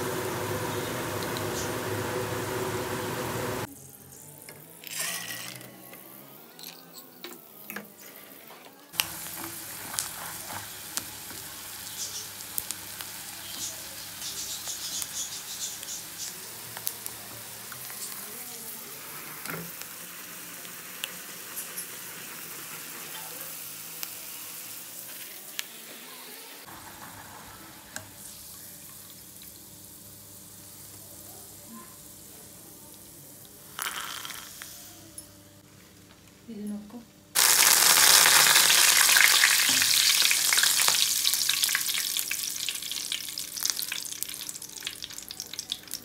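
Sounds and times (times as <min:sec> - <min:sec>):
peanuts sizzling in hot oil: 0:08.9 - 0:35.1, 0:37.4 - 0:46.0.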